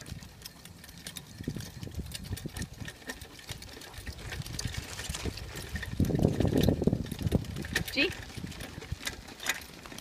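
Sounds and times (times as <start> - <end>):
tricycle rattling over dirt trail: 0.0 - 10.0.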